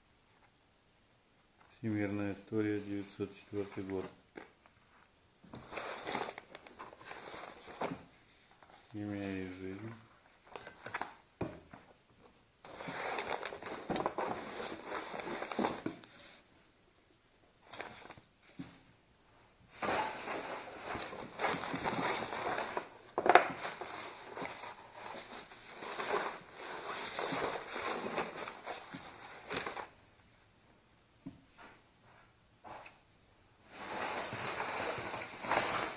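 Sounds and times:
paper and cardboard rustling: 5.5 - 9.9, 12.7 - 16.4, 17.7 - 18.7, 19.7 - 30.0, 33.7 - 35.9.

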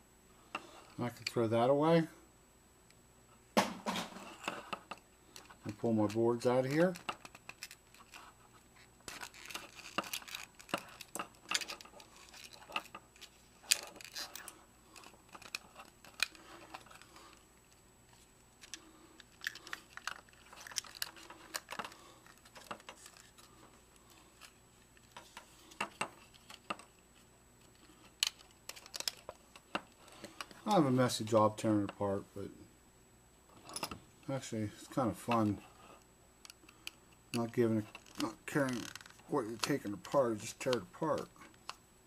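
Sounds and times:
plastic clicks and creaks: 27.7 - 30.6, 36.4 - 41.8.

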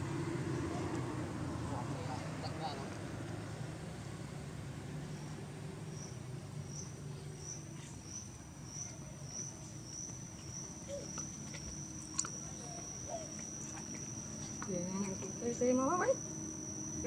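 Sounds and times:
low background hum: 0.0 - 17.0
insect chirping: 4.0 - 17.0.

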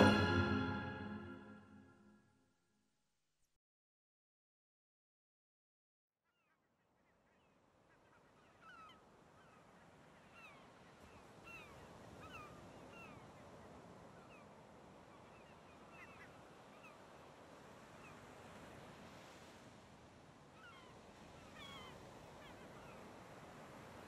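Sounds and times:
sea surf rushing: 0.0 - 1.4
seagulls calling: 20.6 - 23.1.

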